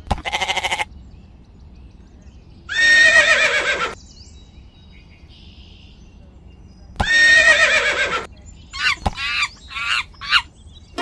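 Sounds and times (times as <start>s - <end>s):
goat bleat: 0.1s - 0.9s
horse whinny: 2.7s - 4.0s, 7.0s - 8.3s.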